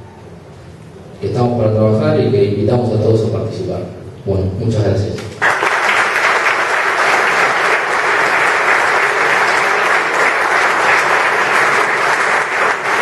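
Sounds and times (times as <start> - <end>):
audience applauding: 5.4 - 13.0.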